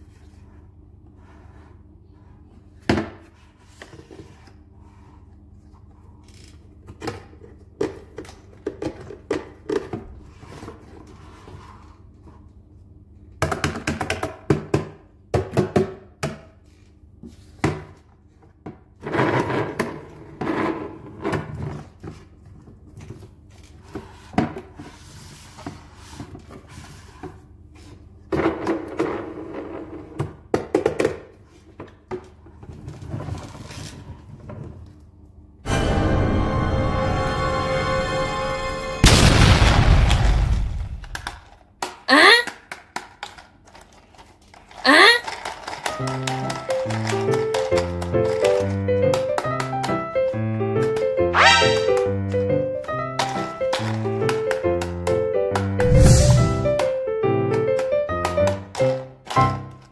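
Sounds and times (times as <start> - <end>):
plastic toy truck clattering: 41.0 - 49.8, 53.1 - 54.9, 57.5 - 59.9.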